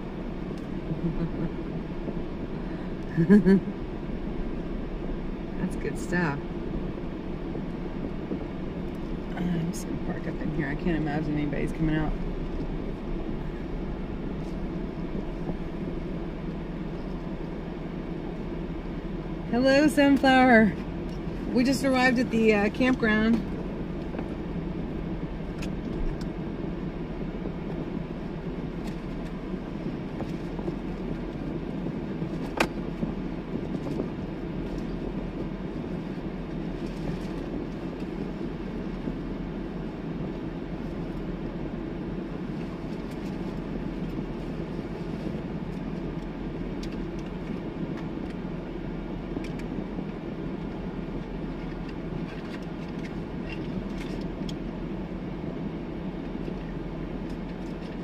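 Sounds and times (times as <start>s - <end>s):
vehicle engine idling: 0.0s - 58.0s.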